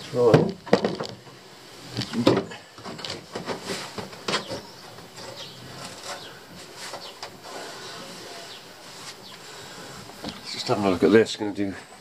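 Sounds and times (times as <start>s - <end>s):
handling knocks and rustling: 0.0s - 9.4s, 10.0s - 11.2s.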